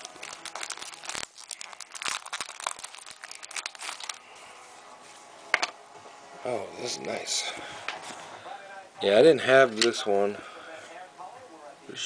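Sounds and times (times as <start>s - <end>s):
wrapper crinkling and tearing: 0.0s - 4.4s.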